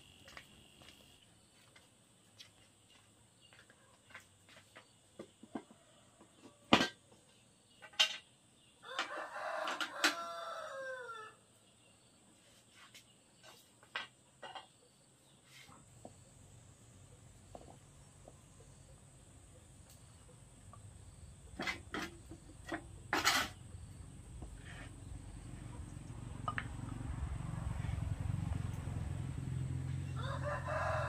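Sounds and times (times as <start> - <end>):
rooster crowing: 8.8 - 11.4, 30.1 - 31.0.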